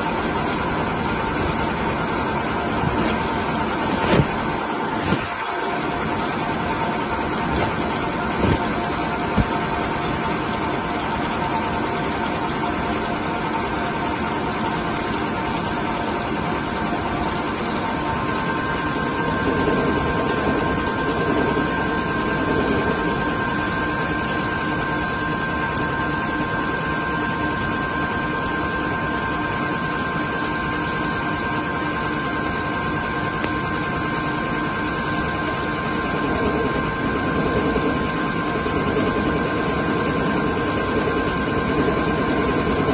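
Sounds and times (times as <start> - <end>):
lathe running with high whine: 0.0 - 42.9.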